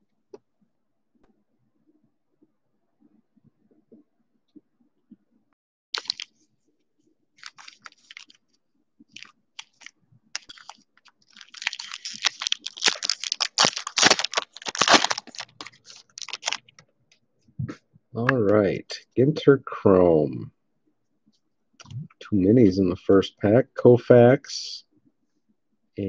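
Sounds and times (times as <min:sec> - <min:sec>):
foil wrapper crinkling: 0:06.0 - 0:06.3, 0:07.4 - 0:08.5, 0:09.1 - 0:16.8
foil wrapper tearing: 0:06.0 - 0:06.3, 0:07.4 - 0:08.4, 0:09.2 - 0:16.8.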